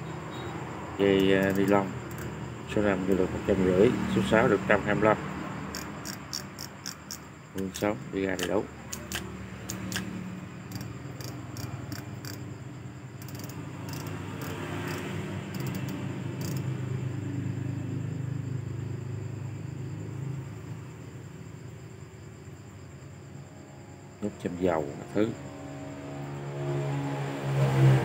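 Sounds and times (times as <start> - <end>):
fishing reel clicking: 1.2 - 2.3, 5.7 - 7.8, 10.7 - 12.4, 13.2 - 16.6.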